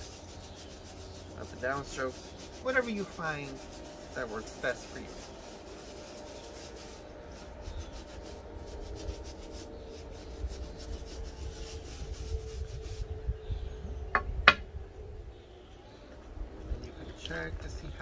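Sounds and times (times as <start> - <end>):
brush scrubbing a sneaker: 0.0 - 13.2.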